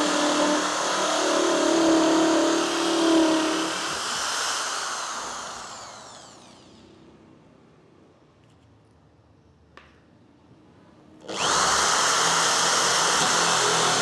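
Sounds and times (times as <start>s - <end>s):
holesaw cutting plywood: 0.0s - 6.6s, 11.3s - 14.0s
drill motor winding down: 0.0s - 7.0s, 11.2s - 14.0s.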